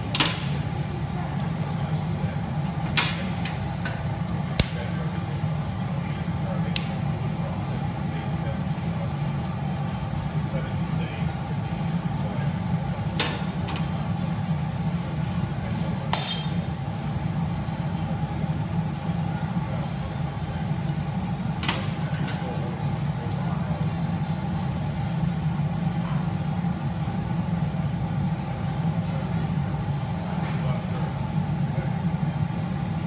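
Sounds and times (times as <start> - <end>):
low roar of workshop: 0.0 - 33.0
metal tools clinking against glass: 16.1 - 16.6.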